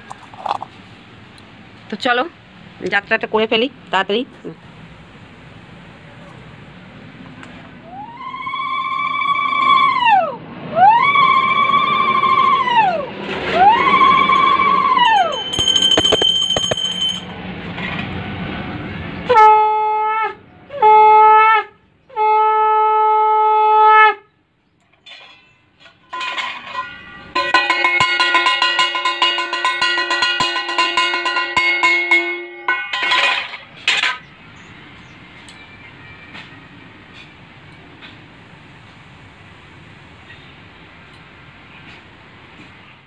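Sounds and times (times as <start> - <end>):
small hand bell clanging: 15.0 - 17.4, 25.3 - 33.5
conch shell blasts: 26.2 - 33.5.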